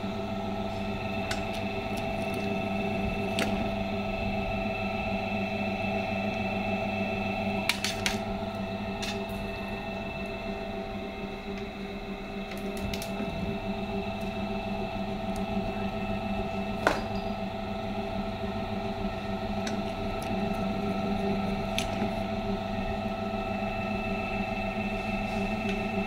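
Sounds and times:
crimping machine motor humming: 0.0 - 26.0.

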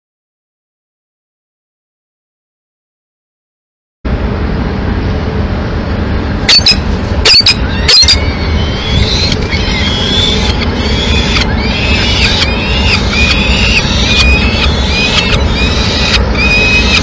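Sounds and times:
city traffic rumble: 4.1 - 17.0
falcon chicks squealing begging calls: 6.5 - 17.0.

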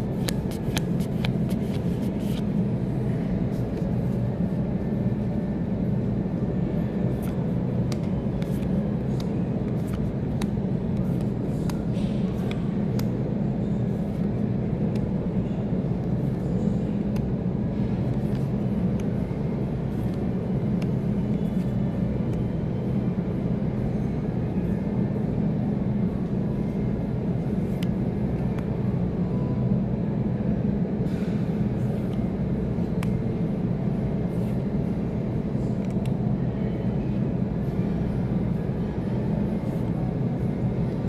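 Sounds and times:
low droning hum: 0.0 - 41.0
trading cards clicking: 0.2 - 2.4.

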